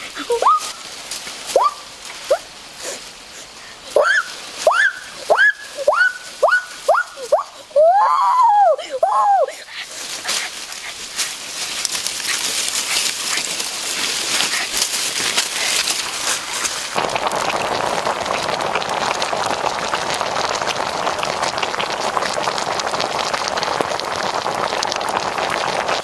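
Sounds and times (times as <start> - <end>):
crackling rustling noise: 0.0 - 7.8, 9.4 - 26.0
sauce boiling in a pan: 9.8 - 26.0.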